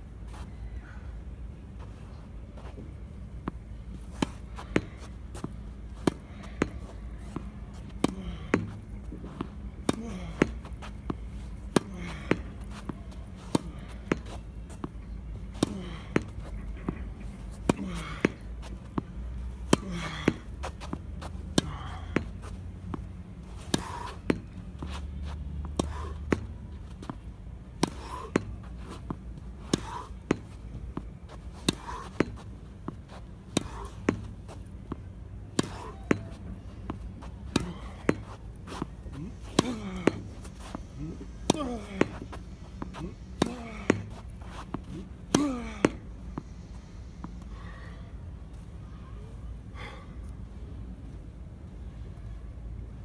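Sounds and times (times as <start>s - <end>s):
racket striking tennis ball: 19.6s - 25.0s, 27.8s - 46.5s
ball hitting wall: 35.6s - 36.3s.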